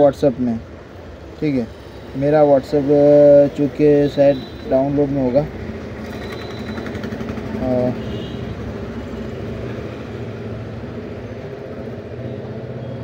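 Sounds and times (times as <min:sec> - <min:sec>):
low rumble of vehicle noise: 0:00.0 - 0:13.0
short loud tone: 0:06.1 - 0:07.0.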